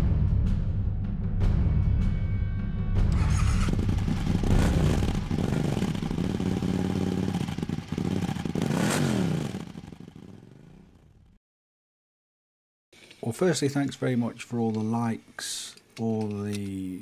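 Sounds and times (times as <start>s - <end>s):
engine revving: 3.1s - 11.4s.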